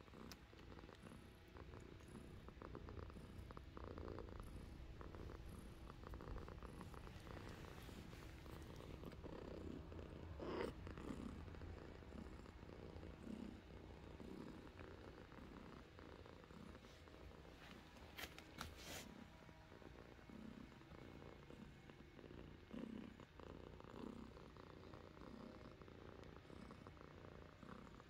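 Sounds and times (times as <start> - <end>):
cats purring: 0.0 - 28.0.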